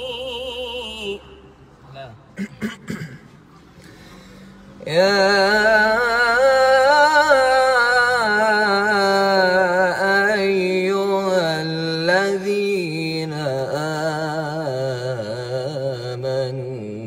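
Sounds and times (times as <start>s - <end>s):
man chant-style singing: 4.8s - 17.0s.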